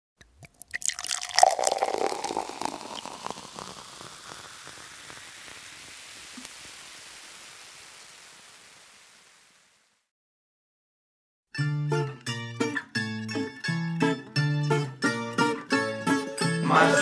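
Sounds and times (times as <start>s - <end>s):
long hiss: 1.6s - 10.1s.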